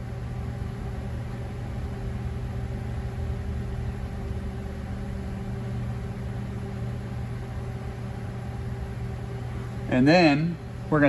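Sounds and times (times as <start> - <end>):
machinery humming: 0.0 - 11.0.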